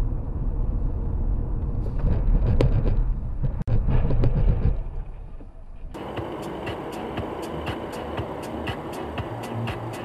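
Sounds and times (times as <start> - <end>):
car road and engine rumble: 0.0 - 10.0
sharp knocks and clicks: 2.0 - 4.8.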